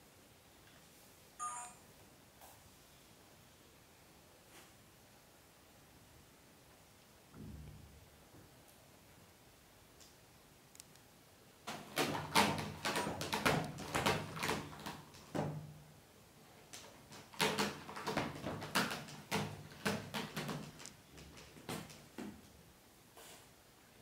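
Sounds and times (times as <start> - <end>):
cat claws scratching sisal: 16.7 - 22.0.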